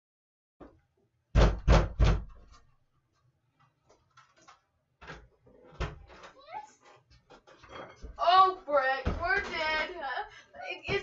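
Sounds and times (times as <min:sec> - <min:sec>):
loud bangs on wooden door: 0:01.3 - 0:02.4.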